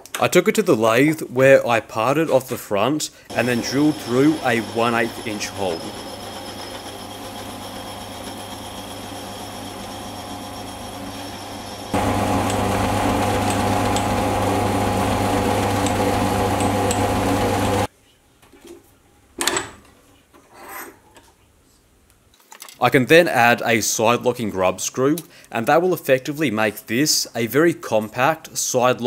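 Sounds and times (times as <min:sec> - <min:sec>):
metal lathe running: 0:03.3 - 0:17.9.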